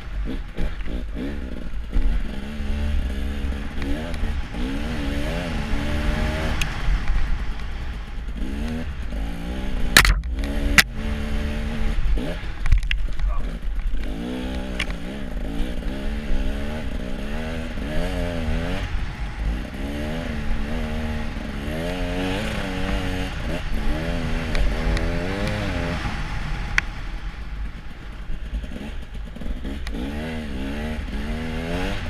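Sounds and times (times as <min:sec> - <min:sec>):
engine revving: 0:00.0 - 0:32.0
sharp click: 0:10.0 - 0:10.9
hiss of wind and snow: 0:11.2 - 0:29.6.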